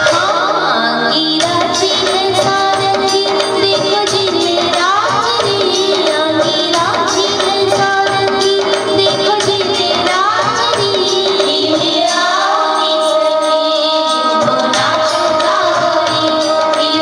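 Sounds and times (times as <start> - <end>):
steady drum beat: 1.4 - 12.6.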